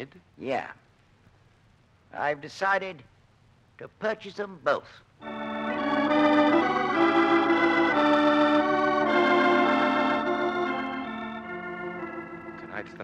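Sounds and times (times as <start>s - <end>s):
sustained organ chords: 5.2s - 13.0s.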